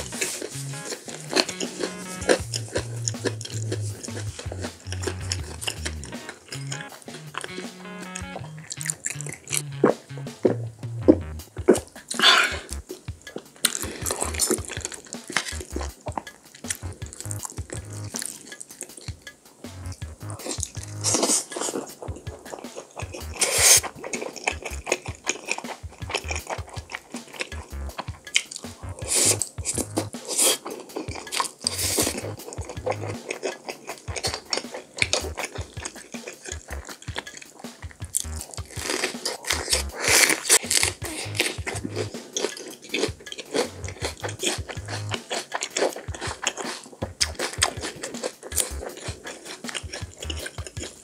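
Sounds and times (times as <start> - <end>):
utensils tapping dish: 0.0 - 9.6, 11.6 - 51.0
crunching bite into pepper: 0.0 - 10.6, 22.5 - 27.8, 28.4 - 51.0
fork crackling through fried food: 0.0 - 10.6, 11.2 - 51.0
wet chewing and mouth smacks: 0.0 - 51.0.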